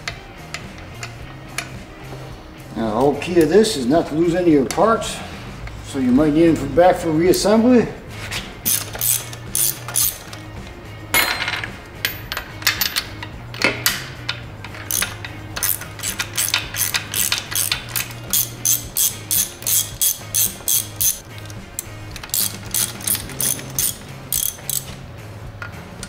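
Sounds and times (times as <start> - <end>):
hand ratchet clicking: 8.6 - 10.6, 12.1 - 25.0.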